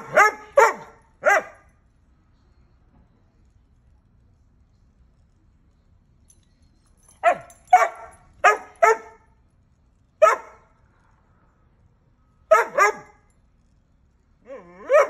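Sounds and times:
dog barking: 0:00.0 - 0:01.6, 0:07.2 - 0:09.2, 0:10.2 - 0:10.6, 0:12.5 - 0:13.2, 0:14.8 - 0:15.0.

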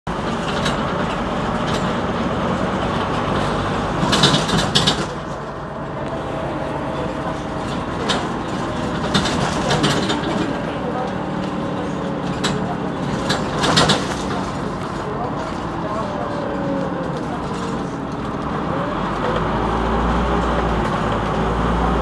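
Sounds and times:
bus engine running: 0:00.0 - 0:22.0
knocks and rattles: 0:00.1 - 0:05.5, 0:07.2 - 0:18.6.

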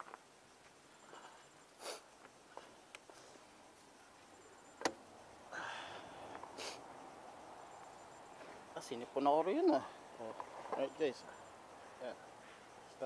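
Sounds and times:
breathy sniffs: 0:01.8 - 0:02.1, 0:05.6 - 0:06.9.

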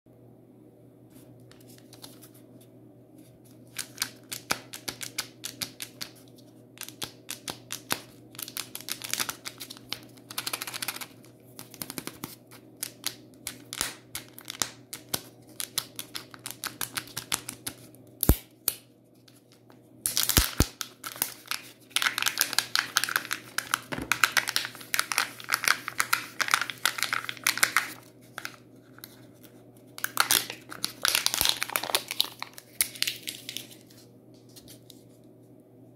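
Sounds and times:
foil wrapper crinkling and tearing: 0:07.7 - 0:17.8, 0:20.1 - 0:34.0.

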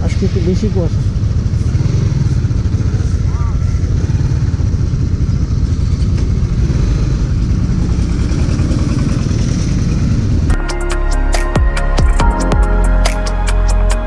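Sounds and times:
motorcycle engine running: 0:00.0 - 0:10.6.

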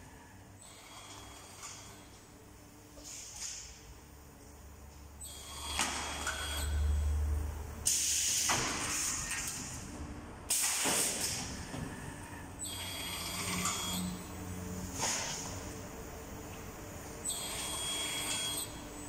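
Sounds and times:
high mechanical whine: 0:11.6 - 0:19.0.

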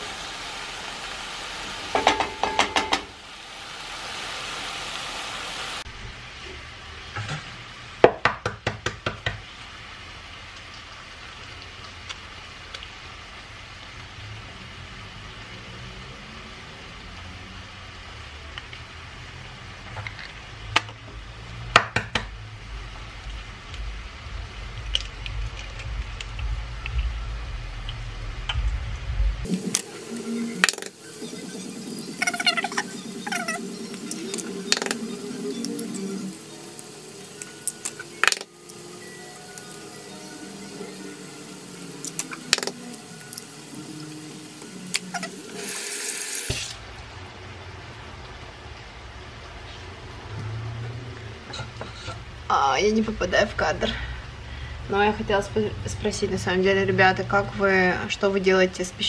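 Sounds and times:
low steady hum: 0:22.7 - 0:45.8.

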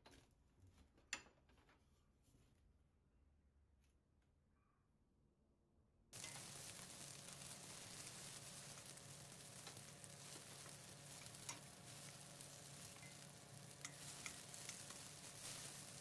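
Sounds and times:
food sizzling in oil: 0:06.2 - 0:16.0.

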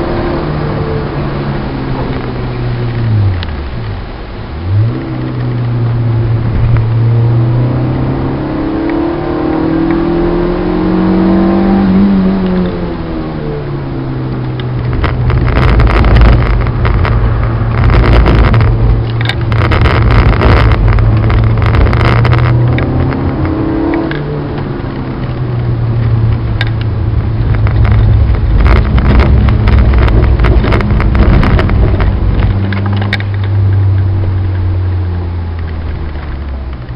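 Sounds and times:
car engine revving: 0:00.0 - 0:36.9
rapid crackling: 0:14.4 - 0:36.9.

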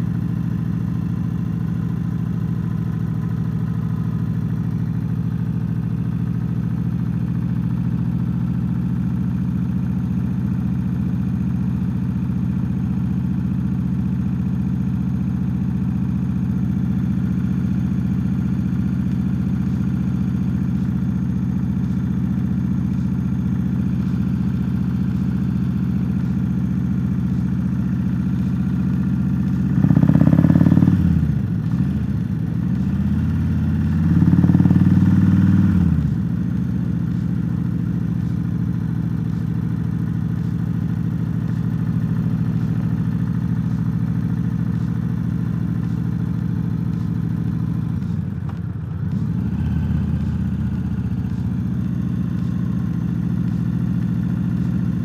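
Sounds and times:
motorcycle engine revving: 0:16.8 - 0:55.0.

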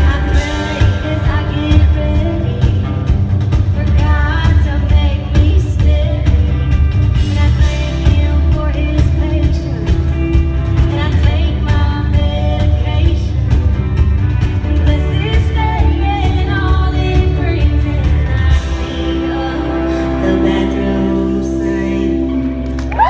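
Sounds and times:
woman singing: 0:00.0 - 0:13.6, 0:14.6 - 0:23.0
live country rock band: 0:00.0 - 0:23.0.

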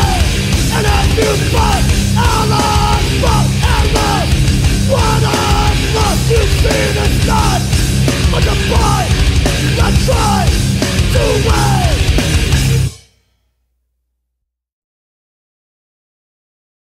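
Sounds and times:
heavy metal song: 0:00.0 - 0:13.0.

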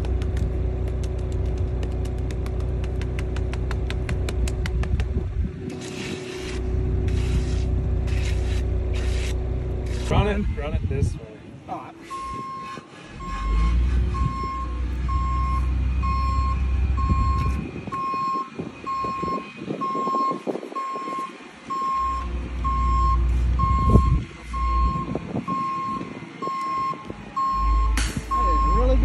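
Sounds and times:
knocks and scrapes: 0:00.0 - 0:10.3
low engine rumble: 0:00.0 - 0:29.0
vehicle backup alarm beeping: 0:12.0 - 0:29.0.

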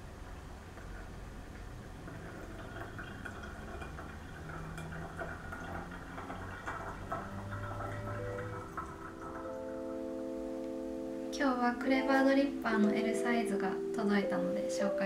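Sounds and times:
coffee trickling into glass beaker: 0:02.0 - 0:09.8.

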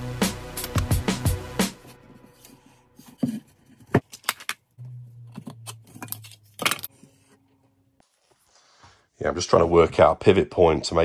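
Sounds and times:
background music with drum beat: 0:00.0 - 0:01.8.

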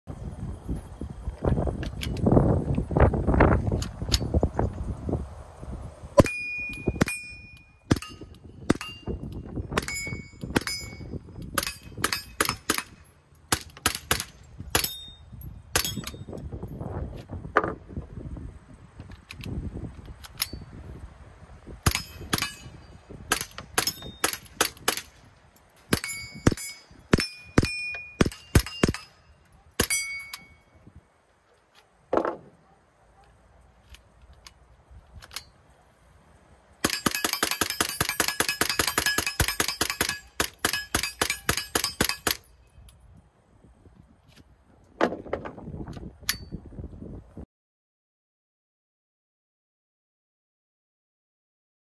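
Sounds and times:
bullet hitting metal ding: 0:06.2 - 0:12.6, 0:14.8 - 0:16.3, 0:26.0 - 0:30.7.

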